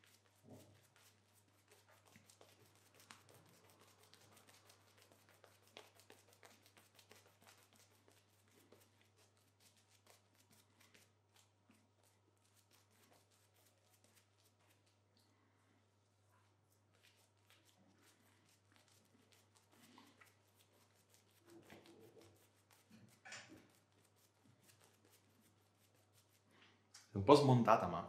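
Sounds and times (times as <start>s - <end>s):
shaving brush lathering on face: 0.0s - 15.3s, 16.5s - 26.6s.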